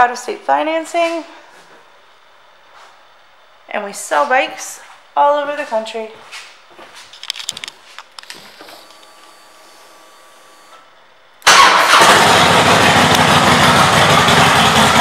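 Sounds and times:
faint steady whine: 0.0s - 11.5s
motorcycle engine starting and running: 11.4s - 15.0s.

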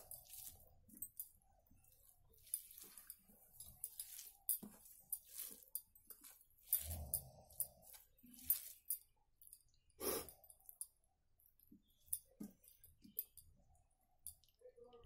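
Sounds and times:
fingers squelching food: 0.0s - 10.8s.

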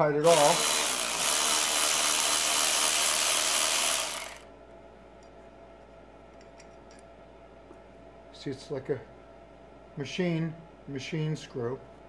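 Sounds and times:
electric ratchet spinning: 0.2s - 4.5s.

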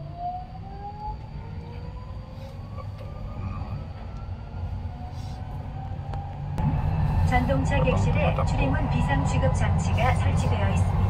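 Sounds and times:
train wheels rumbling on rails: 2.4s - 11.0s.

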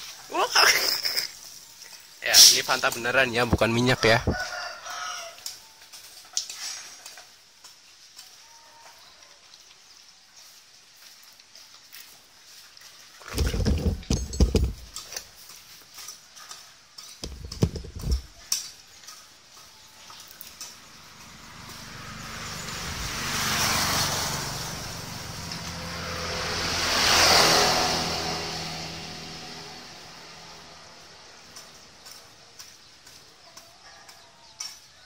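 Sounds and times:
vehicles passing: 0.2s - 5.3s, 13.2s - 15.4s, 17.0s - 18.5s, 19.1s - 33.4s
clattering knocks: 13.3s - 15.2s, 17.2s - 18.3s.

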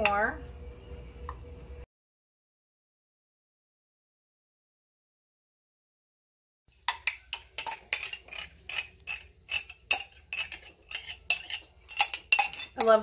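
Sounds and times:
metal spoon clinking in glass jar: 6.9s - 13.0s.

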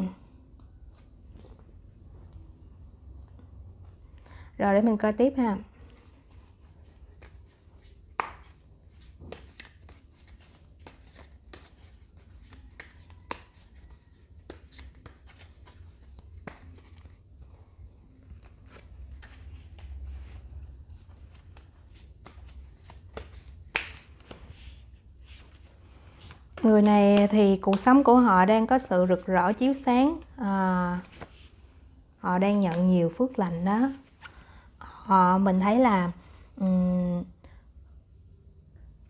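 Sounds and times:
low steady hum: 0.0s - 39.0s
cards clicking and tapping: 7.1s - 17.5s, 21.0s - 24.5s, 26.2s - 28.3s.

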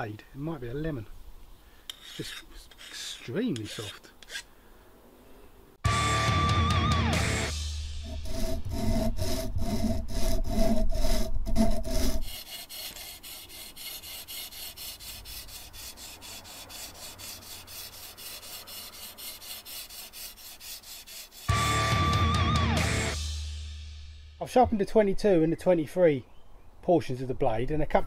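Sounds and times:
sharpening stone rasping on blade: 1.9s - 4.5s, 8.0s - 21.5s.

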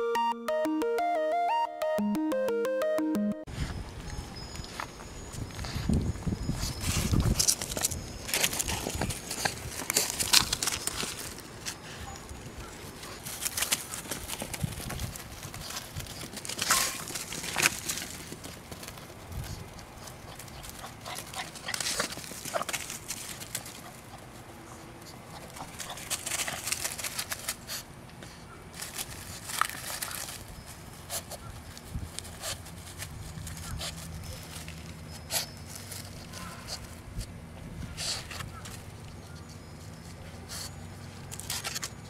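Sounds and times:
dogs rustling through leaves: 5.6s - 24.0s, 25.5s - 27.8s, 28.8s - 37.0s.

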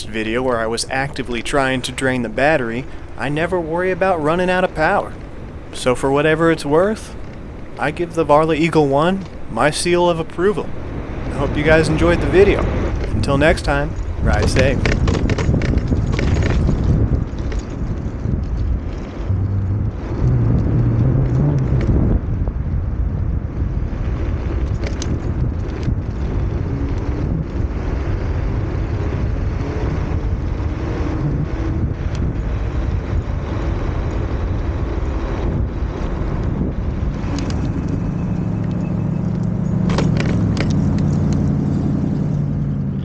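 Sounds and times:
low hum: 0.0s - 43.0s
scooter tyre and wind rush: 0.0s - 43.0s
clicks and rattles: 12.4s - 19.3s, 38.6s - 41.5s.

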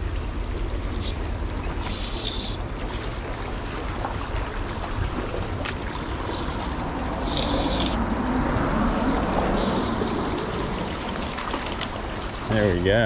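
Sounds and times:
creek water over stones: 0.0s - 13.0s
wind rumble on microphone: 2.6s - 13.0s.

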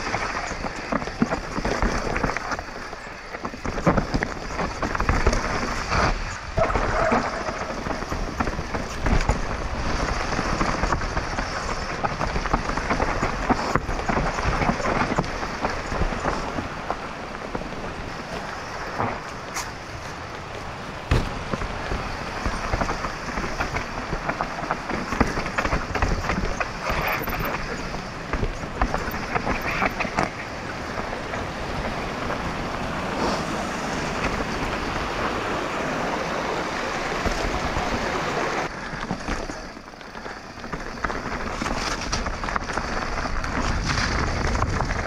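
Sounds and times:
bike rattling: 0.0s - 45.0s
bike tyres on dirt and stones: 0.0s - 45.0s
sharp knocks: 21.1s - 21.6s.

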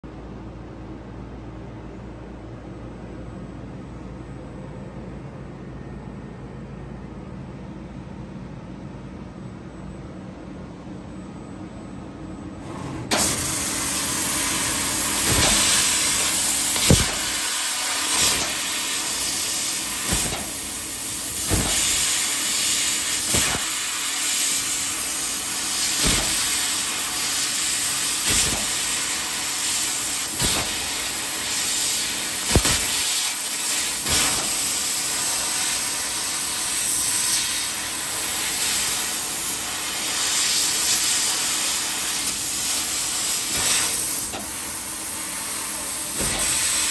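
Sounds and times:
laser assist-gas hiss: 13.1s - 46.9s
short sharp pops: 15.2s - 17.3s, 32.5s - 33.0s.

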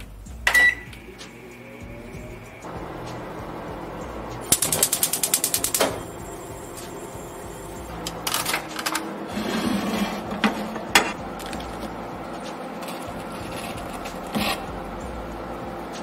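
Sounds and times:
low steady hum: 6.1s - 16.0s.

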